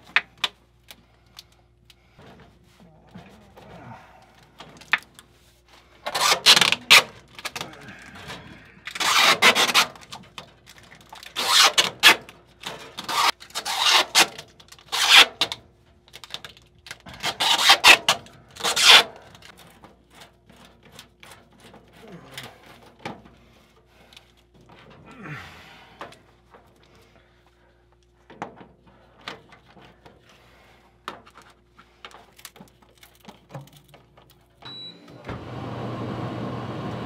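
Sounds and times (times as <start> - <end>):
hand rubbing foil tape: 4.6 - 25.4.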